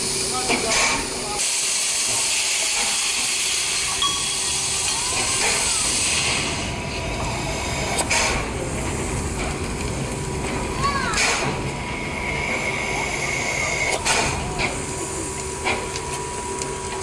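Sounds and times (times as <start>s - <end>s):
steam locomotive hissing: 0.0s - 16.4s.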